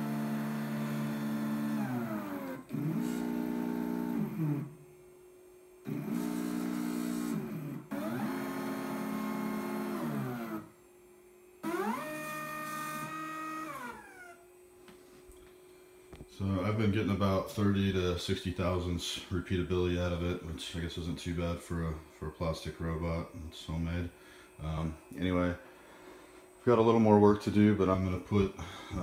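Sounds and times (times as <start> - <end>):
stepper motors whining: 11.6 - 14.4.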